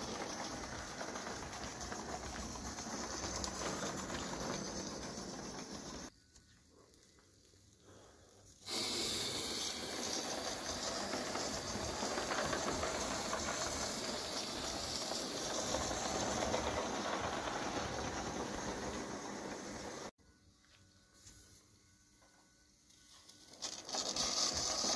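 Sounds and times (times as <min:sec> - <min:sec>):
steam hissing from locomotive: 0:00.0 - 0:06.1, 0:07.8 - 0:20.1, 0:23.4 - 0:24.9.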